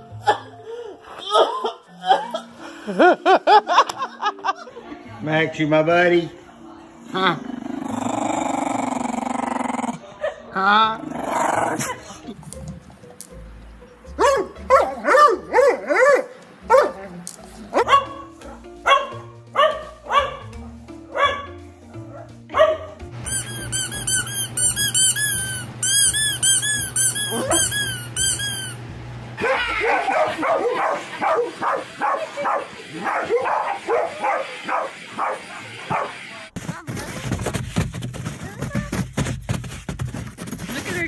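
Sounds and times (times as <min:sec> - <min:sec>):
background music: 0:00.0 - 0:26.6
dog yipping: 0:14.2 - 0:17.0, 0:17.8 - 0:18.2, 0:18.9 - 0:20.5, 0:21.2 - 0:21.5, 0:22.6 - 0:28.8, 0:29.4 - 0:36.2
dog barking: 0:14.2 - 0:17.1, 0:17.7 - 0:23.0, 0:27.3 - 0:27.7, 0:29.4 - 0:36.2
squeaky toy squeaking: 0:23.2 - 0:28.8.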